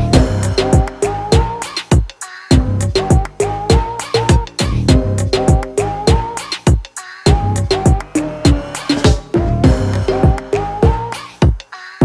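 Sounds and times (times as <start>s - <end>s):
background music with steady beat: 0.0s - 12.0s
deep drum hits dropping in pitch: 9.1s - 11.0s.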